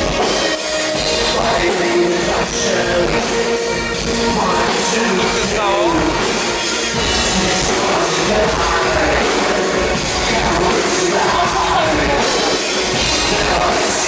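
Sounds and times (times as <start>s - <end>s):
live industrial rock music: 0.0s - 14.0s
person singing: 0.5s - 14.0s.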